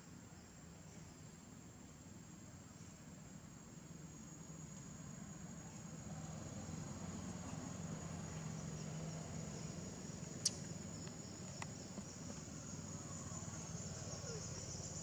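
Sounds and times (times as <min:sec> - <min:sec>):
faint ticks: 0:10.4 - 0:12.1.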